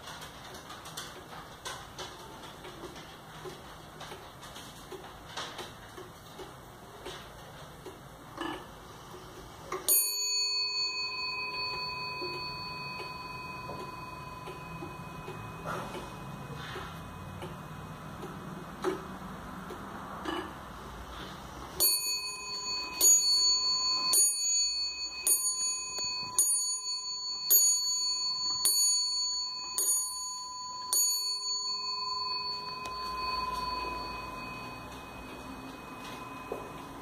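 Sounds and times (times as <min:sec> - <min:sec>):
wall clock striking the hour: 0:00.0 - 0:37.0.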